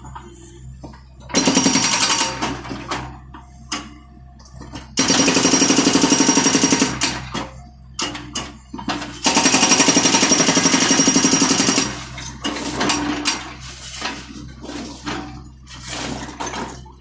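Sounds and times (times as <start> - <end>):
hydraulic breaker hammering concrete: 1.3 - 2.9, 4.7 - 7.4, 8.0 - 13.6.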